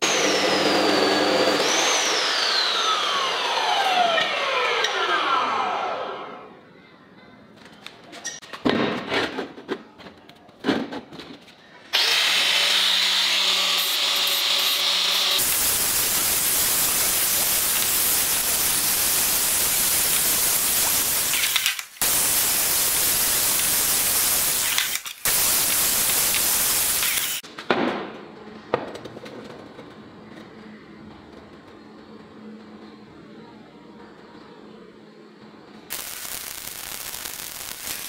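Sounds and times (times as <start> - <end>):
angle grinder grinding steel: 0.0 - 6.1, 12.0 - 27.4, 35.9 - 38.0.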